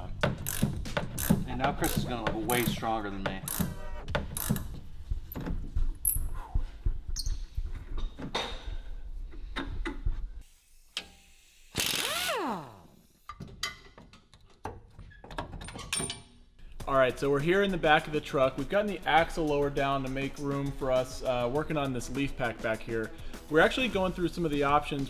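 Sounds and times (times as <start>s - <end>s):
ratchet wrench clicking: 0.4s - 2.8s, 4.4s - 4.6s.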